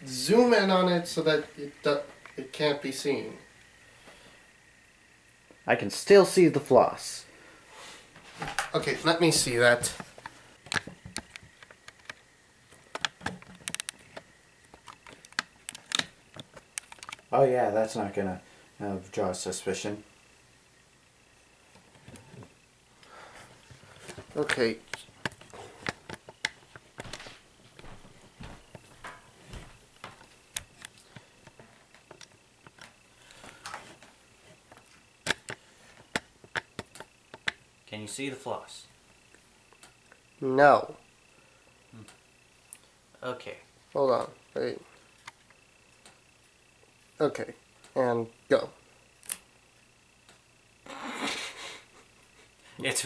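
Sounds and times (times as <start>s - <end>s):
small clicks and taps: 9.8s - 17.3s, 24.0s - 27.3s, 34.6s - 37.6s.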